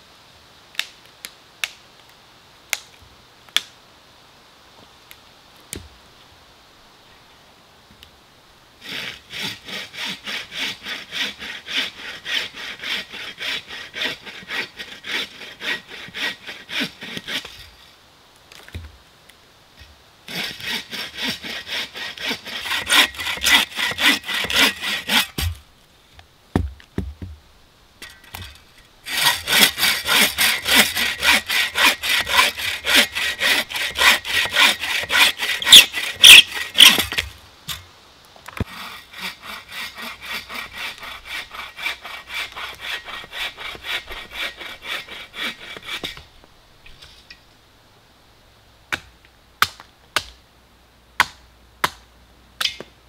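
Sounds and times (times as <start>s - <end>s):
saw rasping through branch: 8.8s - 17.8s, 20.3s - 25.6s, 28.0s - 37.4s, 38.6s - 46.2s.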